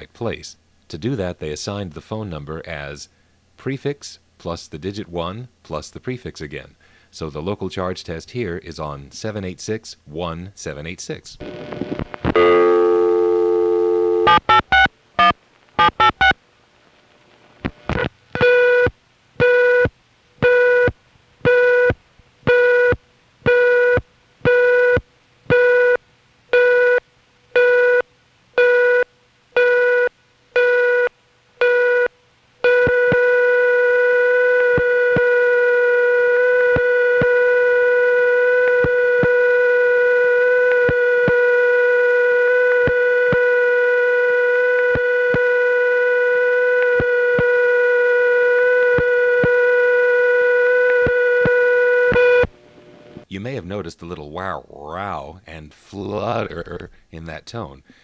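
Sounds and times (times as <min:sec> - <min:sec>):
steady telephone tone: 0:11.4 - 0:16.4, 0:21.5 - 0:26.0, 0:27.6 - 0:28.0, 0:28.6 - 0:53.2
short beeps: 0:29.6 - 0:32.1, 0:32.7 - 0:52.5.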